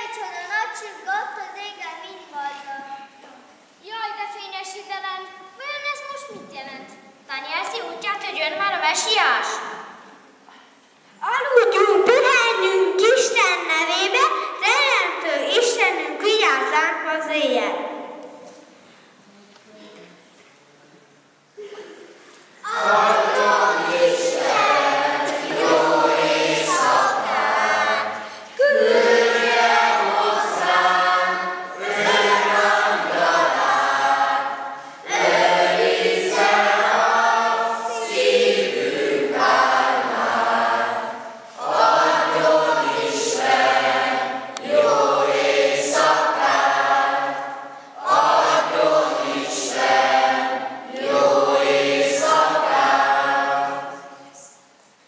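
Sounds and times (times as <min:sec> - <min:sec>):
choir singing: 0:22.6 - 0:54.5.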